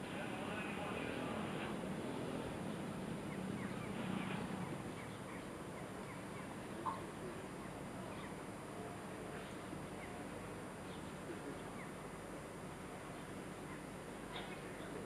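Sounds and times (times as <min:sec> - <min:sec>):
outdoor background hiss: 0:00.0 - 0:15.0
faint bird chirps: 0:03.2 - 0:12.0, 0:13.0 - 0:15.0.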